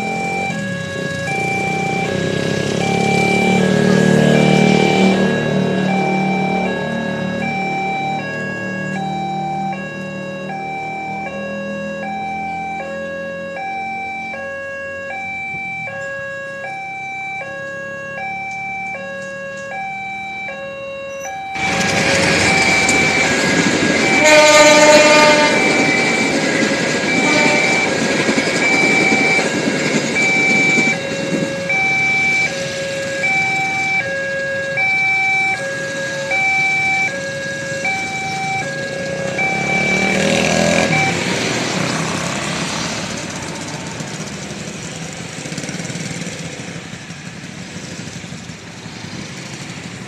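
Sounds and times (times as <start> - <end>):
train passing rumble: 0.0 - 12.8, 21.2 - 50.0
train horn blast: 24.0 - 26.4, 27.1 - 28.0.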